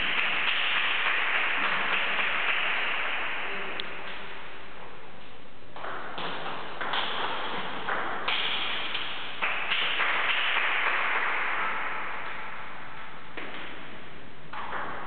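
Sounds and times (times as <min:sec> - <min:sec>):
background noise: 0:00.0 - 0:15.0
table tennis ball hit with paddles: 0:00.0 - 0:15.0
ball bouncing on table: 0:13.4 - 0:15.0.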